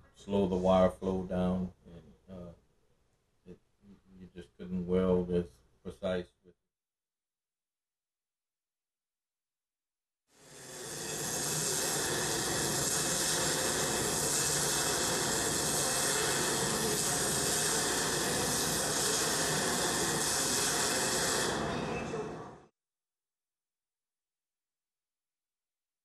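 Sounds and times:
welding arc hissing: 0:10.4 - 0:22.6.

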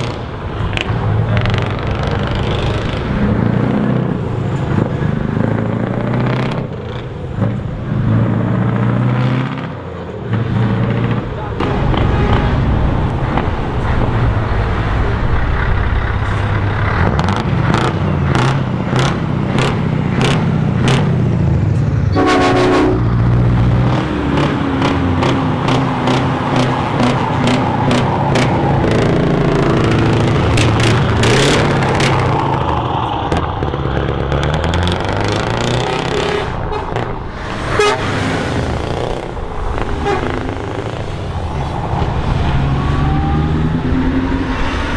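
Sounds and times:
truck engine revving: 0:00.0 - 0:44.9
air horn blast: 0:22.1 - 0:23.2, 0:37.7 - 0:38.2, 0:40.0 - 0:40.4.

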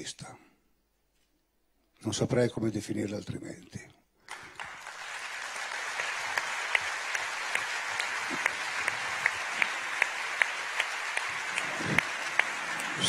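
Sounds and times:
close sharp claps: 0:04.2 - 0:13.0
audience applauding: 0:04.3 - 0:13.0.

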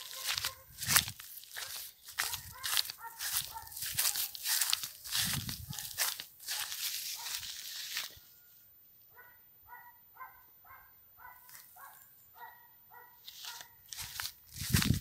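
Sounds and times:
dog barking faintly: 0:00.0 - 0:00.8, 0:01.6 - 0:04.7, 0:09.1 - 0:13.8
rustling: 0:00.0 - 0:08.2, 0:13.2 - 0:15.0.

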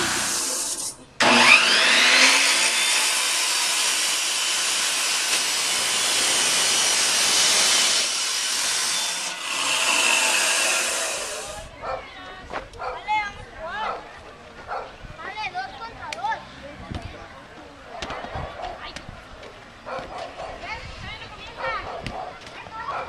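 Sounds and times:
free-spinning saw wheel whine: 0:00.0 - 0:11.6
chop saw grinding through metal: 0:00.0 - 0:11.7.

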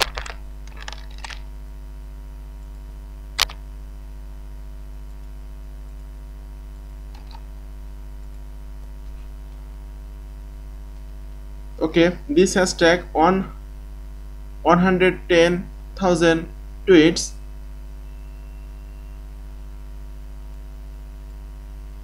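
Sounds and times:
electrical mains hum: 0:00.0 - 0:22.0
computer mouse clicks: 0:03.4 - 0:03.6, 0:07.1 - 0:07.4.

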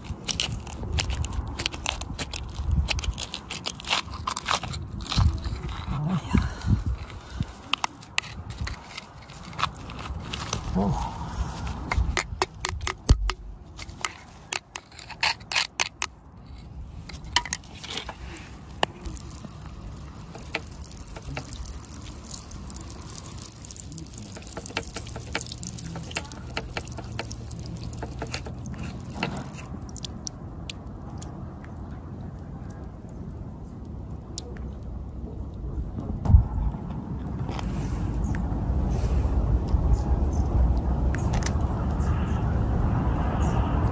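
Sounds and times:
metal pick scraping gravelly soil: 0:00.0 - 0:29.7
water spray hissing and splashing: 0:19.0 - 0:30.1.

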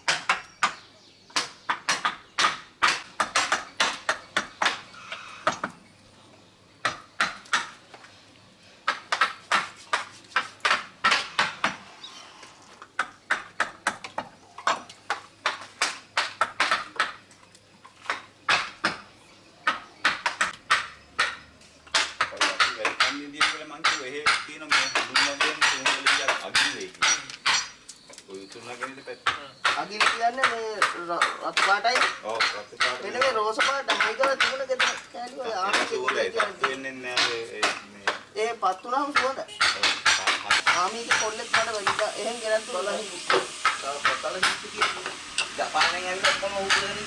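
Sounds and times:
chisel tapping wood: 0:19.6 - 0:27.7, 0:29.2 - 0:35.1, 0:35.7 - 0:38.2, 0:43.3 - 0:47.0.

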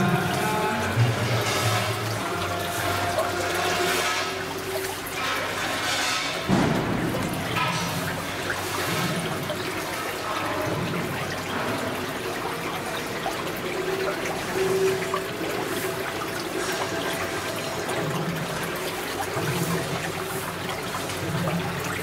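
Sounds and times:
water trickling into a pool: 0:00.0 - 0:22.0.

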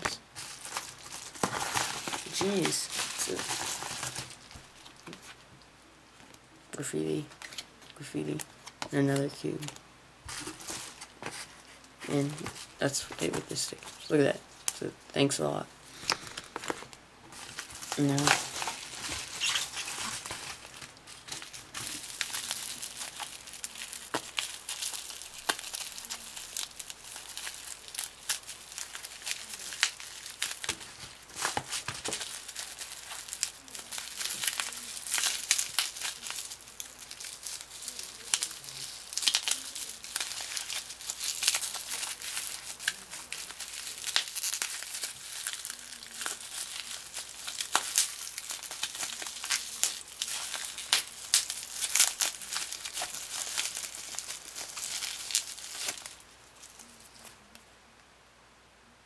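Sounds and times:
wrapper crinkling: 0:00.0 - 0:05.4, 0:07.2 - 0:14.8, 0:15.4 - 0:57.6
wrapper tearing: 0:00.0 - 0:05.4, 0:16.0 - 0:57.5.

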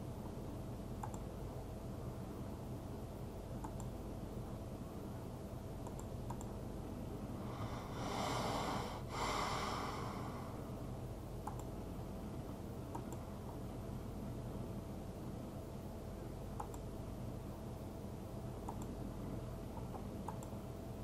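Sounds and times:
low steady background: 0:00.0 - 0:21.0
faint clicks: 0:01.0 - 0:01.3, 0:05.8 - 0:06.6, 0:11.4 - 0:11.7, 0:16.6 - 0:16.9, 0:18.6 - 0:18.9, 0:19.8 - 0:20.6
breathy blowing whoosh: 0:07.4 - 0:10.7.

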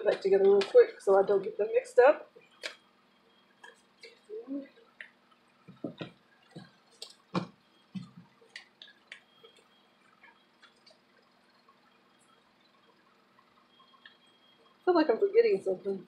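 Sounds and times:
paper cards rustling and tapping: 0:05.0 - 0:09.6.

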